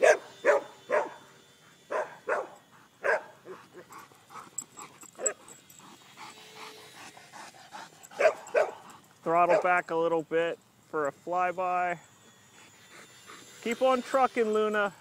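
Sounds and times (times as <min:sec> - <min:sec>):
dog barking: 0:00.0 - 0:01.2, 0:01.9 - 0:03.6, 0:08.2 - 0:08.8.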